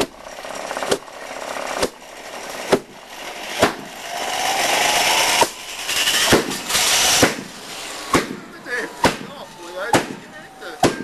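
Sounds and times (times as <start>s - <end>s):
turbine whine: 0.0s - 11.0s
jet engine rushing noise: 3.2s - 11.0s
jet engine sharp bangs: 5.3s - 11.0s.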